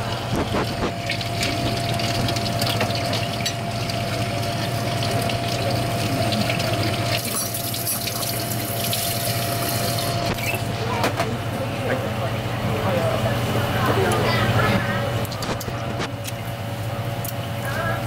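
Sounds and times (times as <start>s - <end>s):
water running from a tap: 0.0s - 10.8s
low machine hum: 0.0s - 18.0s.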